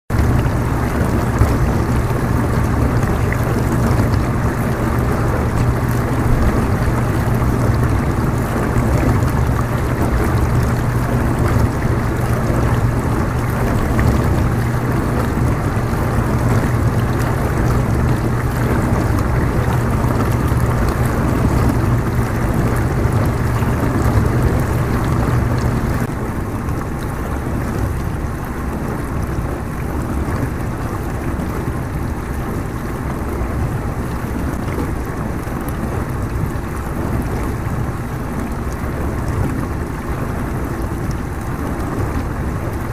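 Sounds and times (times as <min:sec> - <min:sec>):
water spraying inside dishwasher: 0:00.1 - 0:26.1
low motor hum: 0:00.1 - 0:42.9.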